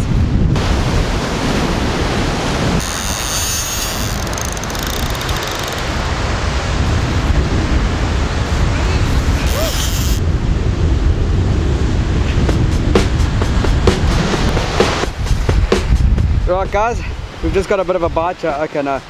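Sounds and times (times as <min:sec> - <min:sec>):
wind buffeting microphone: 0:00.0 - 0:18.5
surf breaking over rocks: 0:00.6 - 0:02.8, 0:10.8 - 0:19.0.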